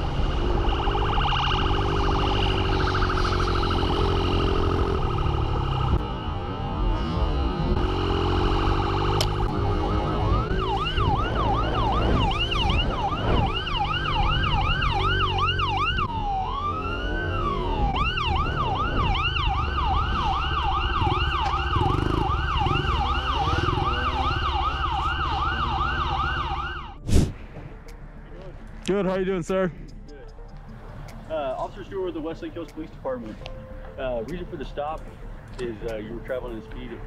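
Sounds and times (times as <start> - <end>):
police siren: 0.0 - 27.0
motorcycle engine rumble: 0.0 - 28.8
wind noise: 10.9 - 14.8.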